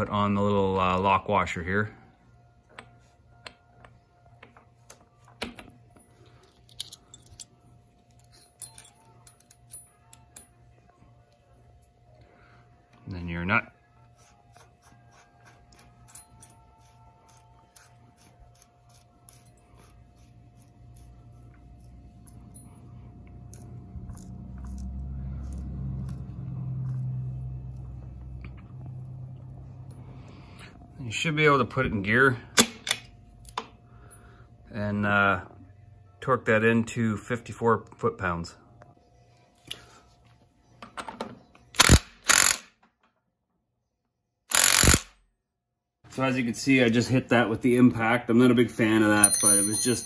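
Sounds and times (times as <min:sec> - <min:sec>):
low steady hum: 0:00.0 - 0:41.9
light metallic clicks and clinks: 0:05.4 - 0:10.6, 0:49.1 - 0:50.0
low hum: 0:19.3 - 0:38.0.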